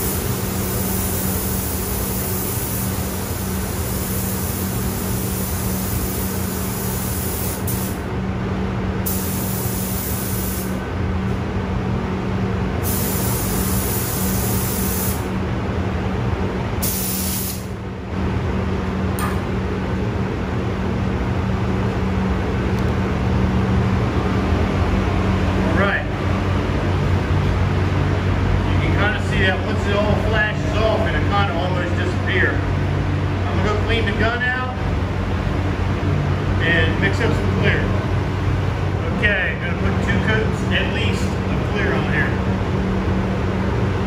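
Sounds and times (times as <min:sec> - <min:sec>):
paint spray gun hissing: 0:00.0 - 0:08.0, 0:09.1 - 0:10.8, 0:12.8 - 0:15.3, 0:16.8 - 0:17.7.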